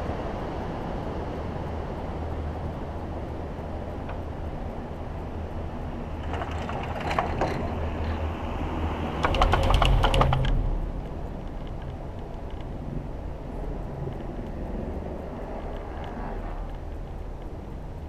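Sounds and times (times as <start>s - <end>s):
low rumble of moving cabin: 0.0s - 18.0s
rapid clicks of cable rollers: 6.0s - 8.2s, 9.0s - 10.6s
clatter of cable rollers: 6.1s - 8.3s, 9.1s - 10.7s.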